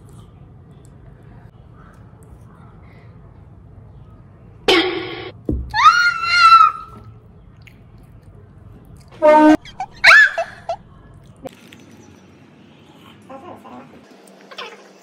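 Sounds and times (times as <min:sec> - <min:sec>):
low thump: 0:04.7 - 0:05.8.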